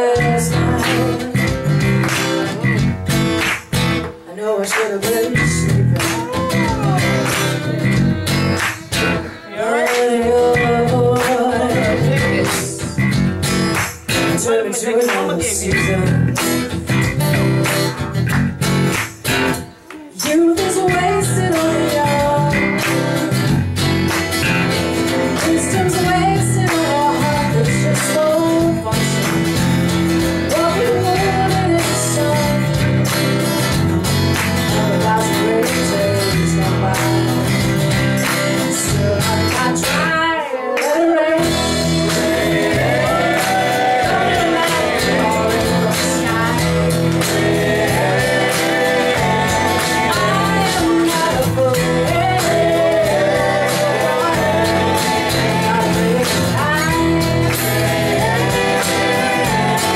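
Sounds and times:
woman singing lead: 0:00.0 - 0:01.6, 0:04.3 - 0:13.0, 0:19.7 - 0:23.5, 0:25.2 - 0:29.3, 0:30.4 - 0:33.0, 0:34.7 - 0:37.5, 0:38.7 - 0:59.9
electric bass guitar: 0:00.0 - 0:04.3, 0:05.2 - 0:14.6, 0:15.3 - 0:40.2, 0:41.4 - 0:59.9
acoustic guitars: 0:00.0 - 0:59.9.

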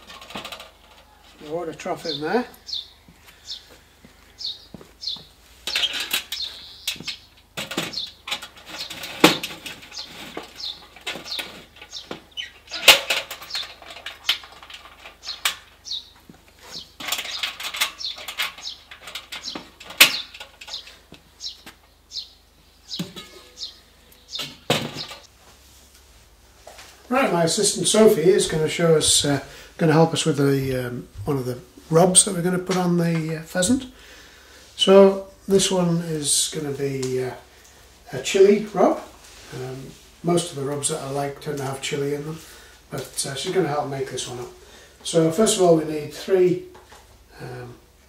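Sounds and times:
metal clanks and scrapes: 0:00.0 - 0:01.4, 0:05.6 - 0:16.0, 0:16.6 - 0:21.1, 0:22.9 - 0:25.3.

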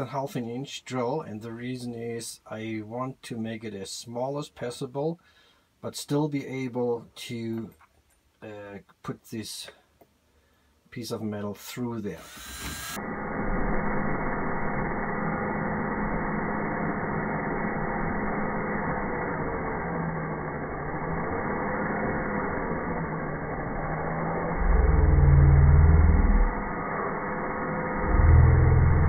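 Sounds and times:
cordless drill motor droning: 0:12.2 - 0:29.0.

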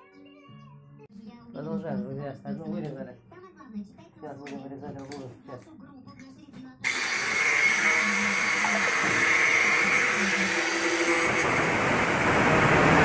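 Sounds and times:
angle grinder whining: 0:06.8 - 0:13.0.

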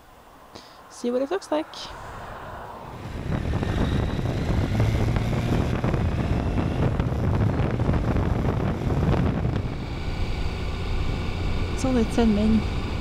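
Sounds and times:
wind rushing: 0:01.6 - 0:13.0
motorcycle engine running: 0:03.0 - 0:13.0.

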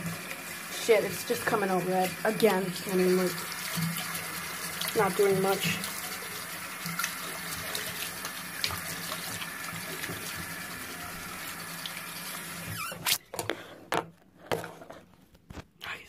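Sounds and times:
faucet running into a sink: 0:00.0 - 0:13.1
hands rinsing under water: 0:00.9 - 0:12.9.

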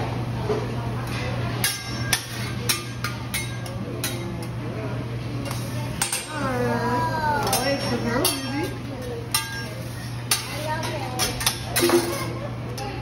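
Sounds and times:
metal spatulas clacking on griddle: 0:01.1 - 0:04.5, 0:05.4 - 0:06.4, 0:07.4 - 0:12.4.

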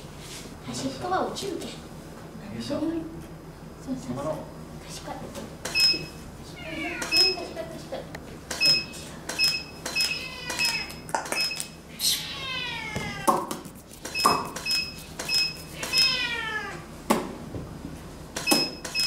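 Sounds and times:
cat meowing: 0:06.6 - 0:07.4, 0:10.1 - 0:11.0, 0:11.9 - 0:13.4, 0:15.8 - 0:16.9
camera clicks with high beeps: 0:08.5 - 0:11.8, 0:14.1 - 0:16.1, 0:18.4 - 0:19.0.

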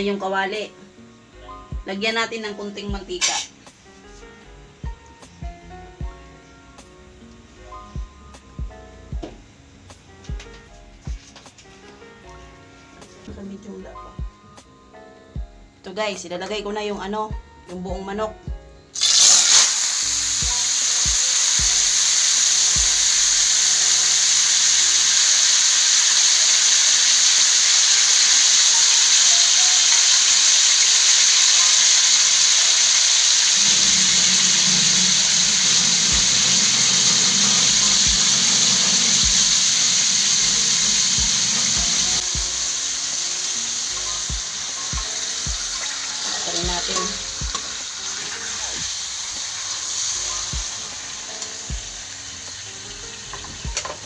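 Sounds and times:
chicken sizzling in hot oil: 0:03.2 - 0:03.6, 0:19.0 - 0:54.0.

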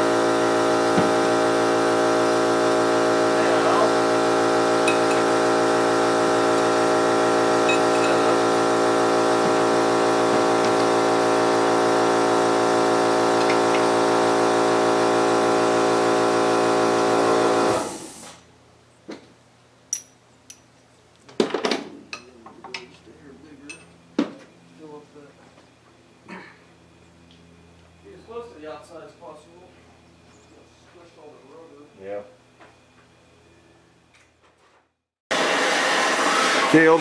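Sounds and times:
motor-driven machine running: 0:00.0 - 0:18.1.

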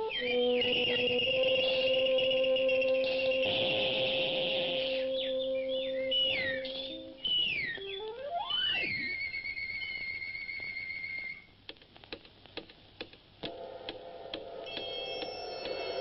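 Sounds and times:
electronic whistling tones: 0:00.0 - 0:11.5.

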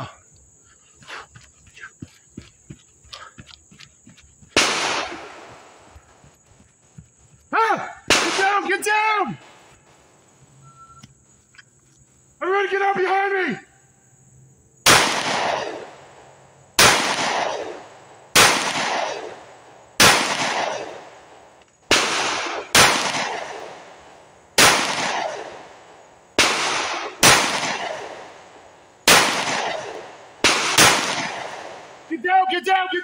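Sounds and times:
pistol shots: 0:04.6 - 0:05.9, 0:08.1 - 0:08.9, 0:14.8 - 0:16.2, 0:16.8 - 0:32.1.

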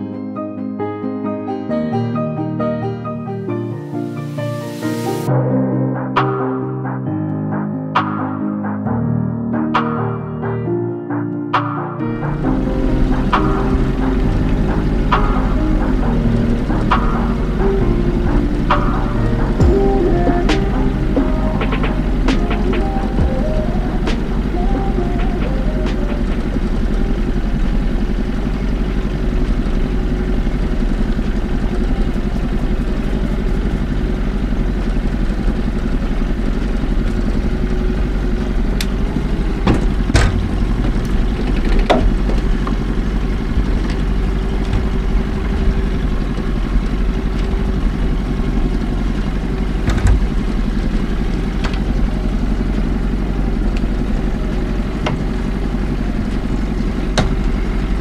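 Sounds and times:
engine running at low revs: 0:12.2 - 0:58.0.

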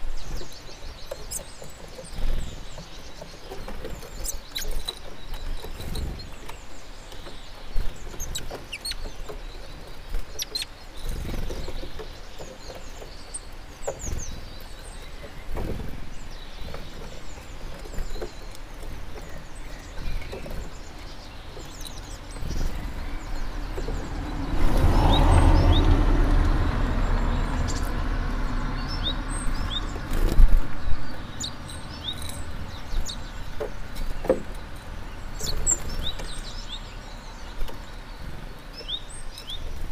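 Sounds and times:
small birds chirping: 0:00.0 - 0:39.9
low rumble: 0:22.0 - 0:31.4.

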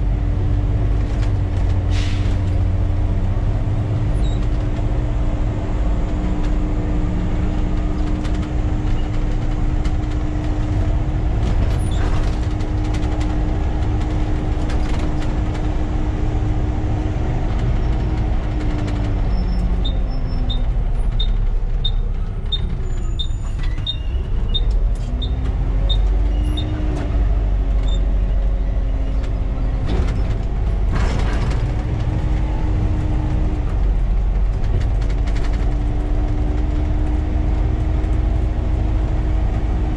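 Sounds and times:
bus diesel engine: 0:00.0 - 0:39.9
road rumble: 0:00.0 - 0:39.9.

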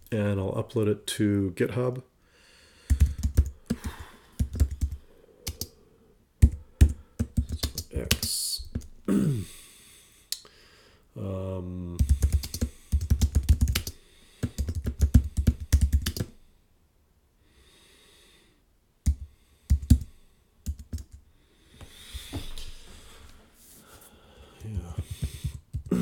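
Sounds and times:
typing on keyboard: 0:02.9 - 0:05.7, 0:06.4 - 0:08.9, 0:12.0 - 0:16.4, 0:19.1 - 0:21.2, 0:24.9 - 0:26.0.

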